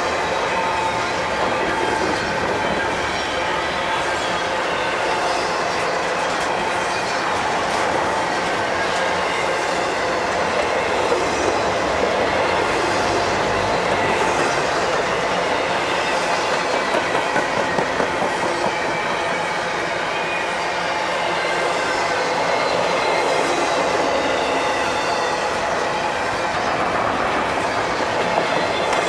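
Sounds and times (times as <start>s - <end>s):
freight train rolling past: 0.0s - 29.0s
wheels clacking over rail joints: 6.3s - 19.9s, 26.3s - 29.0s.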